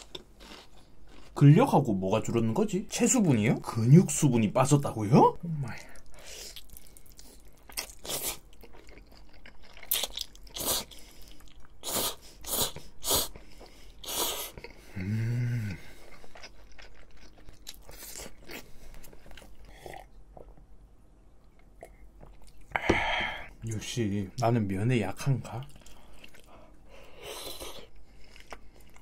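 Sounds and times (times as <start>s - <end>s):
person humming mm: 14.9s - 15.9s.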